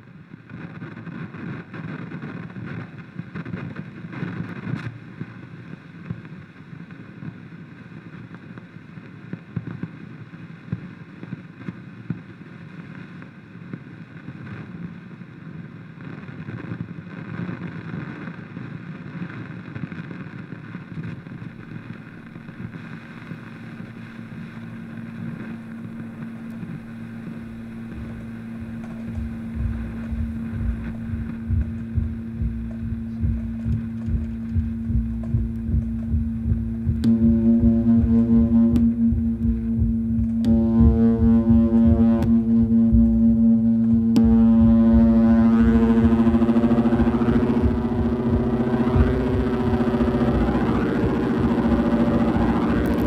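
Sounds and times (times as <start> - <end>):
rumbling hissing guitar drone: 21.3 - 53.0
low hum-like tone: 21.4 - 53.0.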